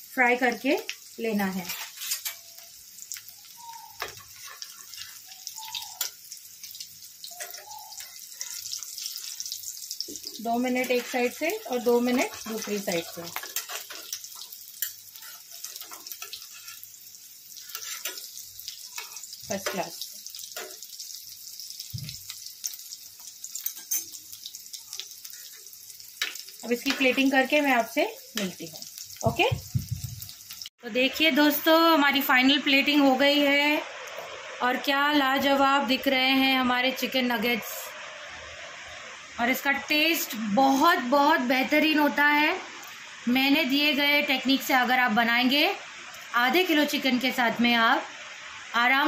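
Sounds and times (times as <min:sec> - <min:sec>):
food frying in oil: 0:00.0 - 0:49.0
oil popping and crackling: 0:00.9 - 0:16.8, 0:21.7 - 0:30.7.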